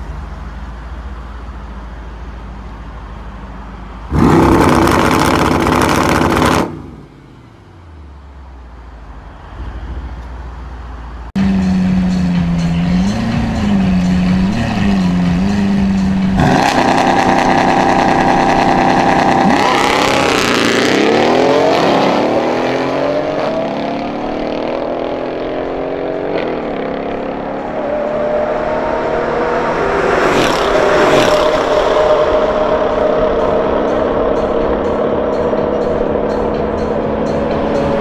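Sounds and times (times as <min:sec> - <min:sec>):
race car engines revving: 0:00.0 - 0:38.0.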